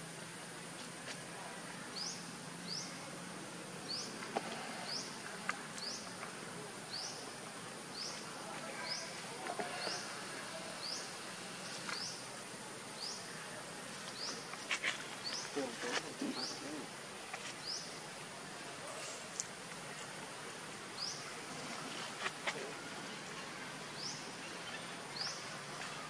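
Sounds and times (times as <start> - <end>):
high insect hiss: 0.0 - 26.0.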